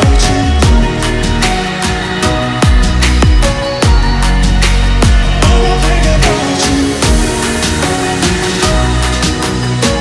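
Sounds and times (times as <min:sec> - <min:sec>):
heavy kick drum beat: 0:00.0 - 0:09.6
electronic dance music: 0:00.0 - 0:10.0.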